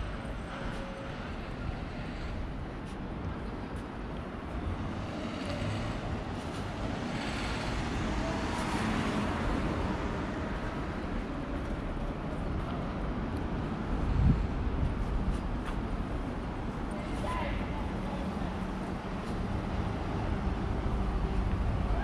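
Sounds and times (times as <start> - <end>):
cars passing on street: 0.0 - 22.0.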